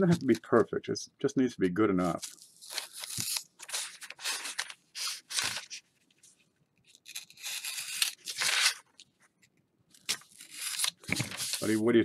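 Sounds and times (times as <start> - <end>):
paper being cut and rustled: 2.2 - 5.8, 7.0 - 8.8, 10.0 - 11.8.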